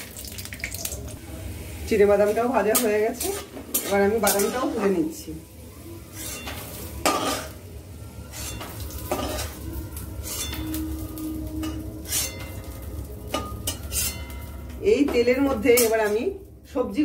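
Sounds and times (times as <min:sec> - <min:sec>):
metal spatula scraping wok: 0:02.1 - 0:05.3, 0:06.0 - 0:16.4.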